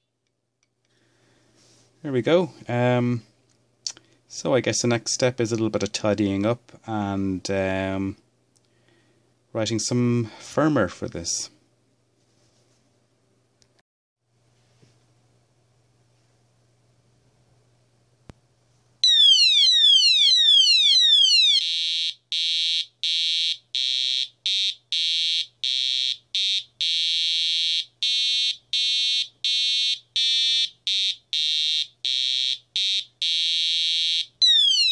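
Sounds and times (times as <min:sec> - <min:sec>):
door alarm buzzer sweeps and beeping: 0:19.0 - 0:34.9.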